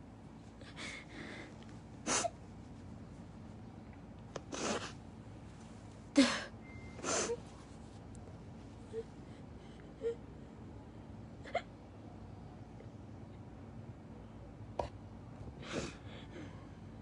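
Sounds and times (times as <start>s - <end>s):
woman sobbing: 6.2s - 7.4s.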